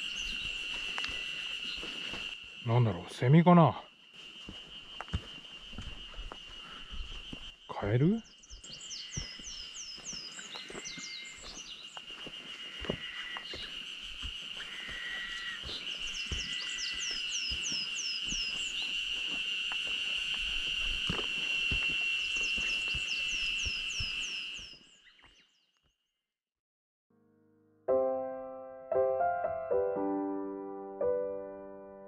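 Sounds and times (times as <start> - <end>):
footsteps on dirt trail: 0.0 - 2.6, 3.9 - 25.4.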